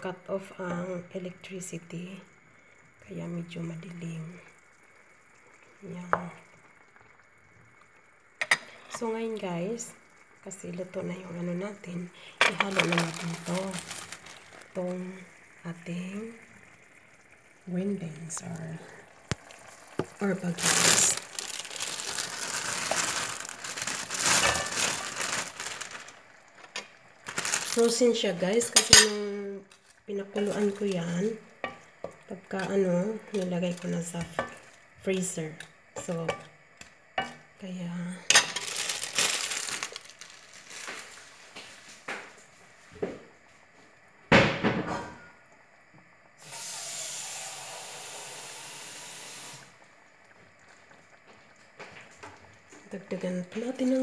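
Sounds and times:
steady hiss: 0:00.0 - 0:54.0
plastic bag crinkling: 0:12.2 - 0:14.8, 0:19.4 - 0:29.0, 0:29.7 - 0:31.4, 0:32.4 - 0:34.8, 0:38.3 - 0:42.0
pans and utensils clattering: 0:28.7 - 0:29.4.

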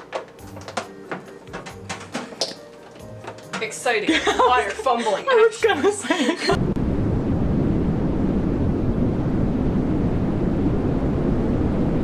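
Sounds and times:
low crackling film rumble: 0:06.5 - 0:12.0.

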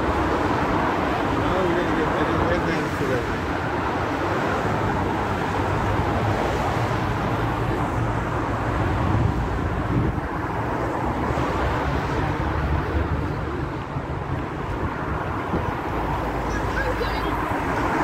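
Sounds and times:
traffic passing: 0:00.0 - 0:18.0
wind buffeting microphone: 0:03.4 - 0:16.7.

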